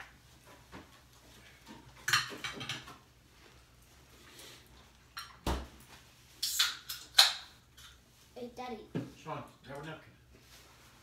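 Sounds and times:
cutlery clinking on plates: 0:01.7 - 0:03.0.

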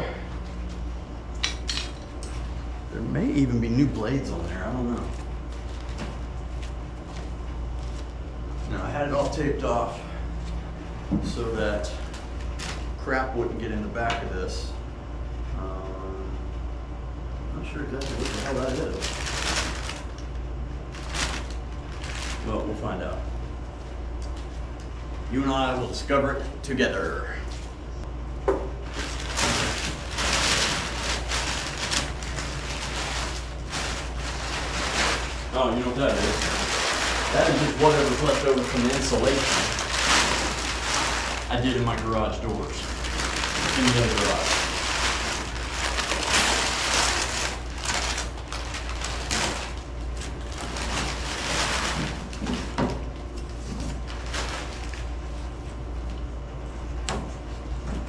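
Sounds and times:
steady low hum: 0:00.0 - 0:58.0
insulation crinkling and rustling: 0:00.2 - 0:14.5, 0:17.5 - 0:28.1, 0:28.7 - 0:58.0.

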